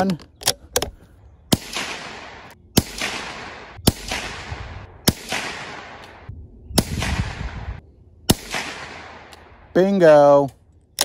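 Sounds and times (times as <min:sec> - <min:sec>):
rifle shots echoing: 0:01.5 - 0:09.7.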